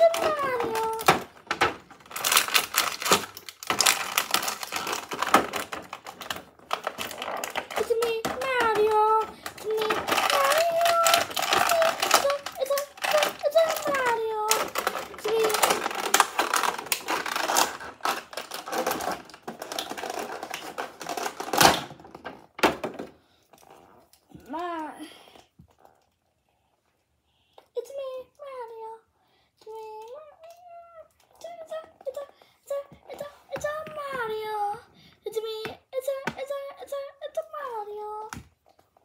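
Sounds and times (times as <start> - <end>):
plastic packaging crinkling: 0.0 - 22.3.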